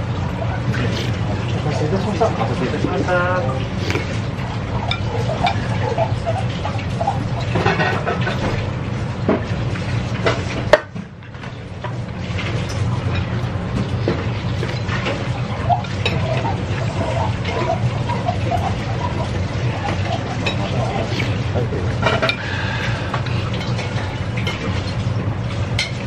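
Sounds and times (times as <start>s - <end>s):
restaurant room hum: 0.0s - 26.0s
chopsticks and spoon clinking on bowl: 14.5s - 15.2s.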